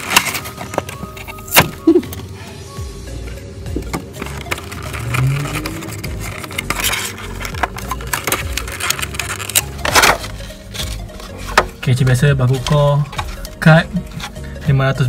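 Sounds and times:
plastic packaging crinkling: 4.2 - 11.4.

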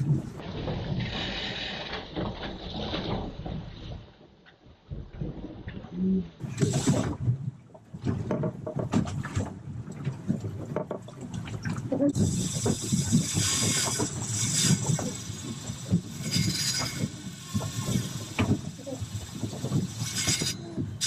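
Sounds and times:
knocks and thumps on boat: 6.4 - 21.0.

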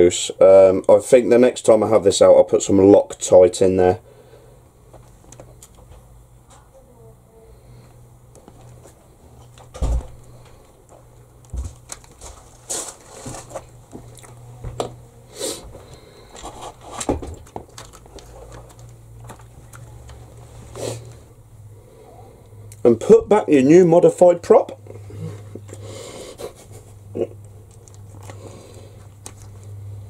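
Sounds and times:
clicks knocks and scrapes of parts: 16.3 - 20.2.

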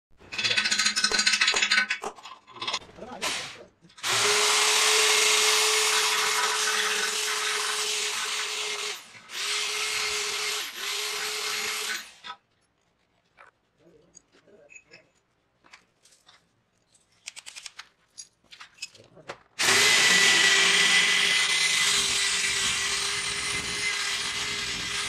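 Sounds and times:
power drill boring into metal: 3.2 - 12.4, 19.6 - 25.0.

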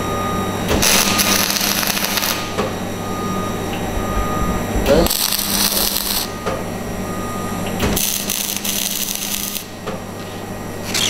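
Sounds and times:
low hum of welding set: 0.0 - 11.0
welding arc crackling: 0.7 - 2.6, 5.0 - 6.4, 7.8 - 9.8.

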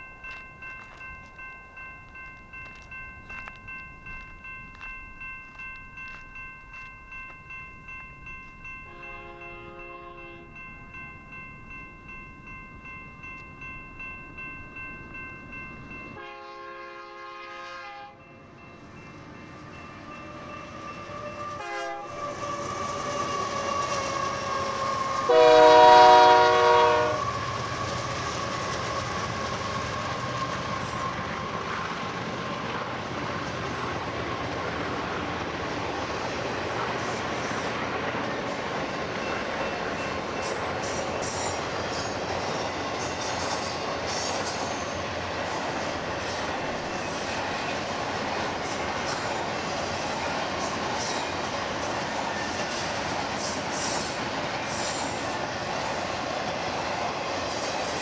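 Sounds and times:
crossing bell ringing: 0.0 - 58.0
train rumble: 0.0 - 58.0
locomotive air horn: 8.9 - 10.5, 16.2 - 18.2, 21.4 - 27.4.

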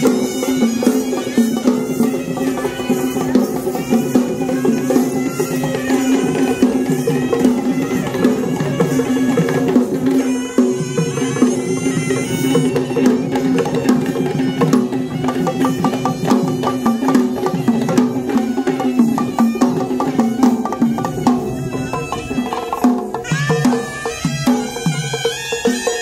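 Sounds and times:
marching drums: 0.0 - 26.0
reedy wind instrument melody: 0.0 - 26.0.

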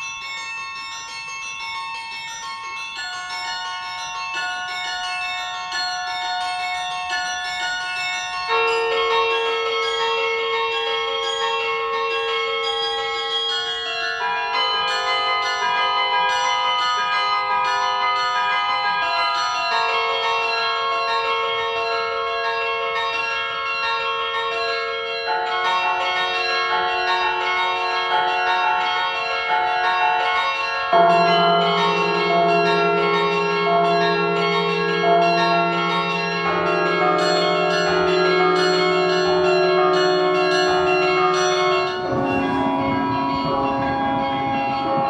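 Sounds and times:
carillon bells playing melody: 0.0 - 45.0
deep bass bell: 29.2 - 45.0.

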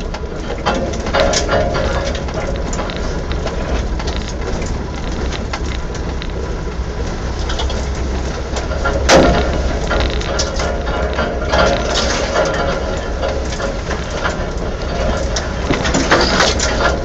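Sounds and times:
vehicle rumbling on muddy track: 0.0 - 17.0
knocks and mud splatters: 8.6 - 17.0.

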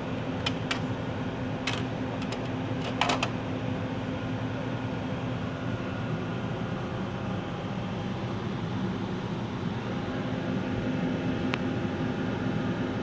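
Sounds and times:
mechanical fan hum: 0.0 - 13.0
hand knocking plastic racks: 1.7 - 3.3.

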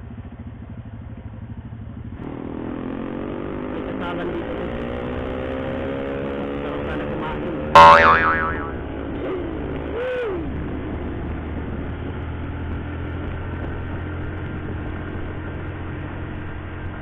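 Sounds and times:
motorcycle engine running: 0.0 - 17.0
road and wind noise: 0.0 - 17.0
rising and falling tone: 7.8 - 8.9.

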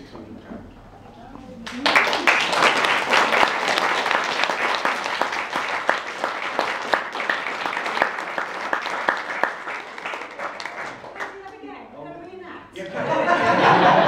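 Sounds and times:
audience applauding: 1.6 - 11.6.

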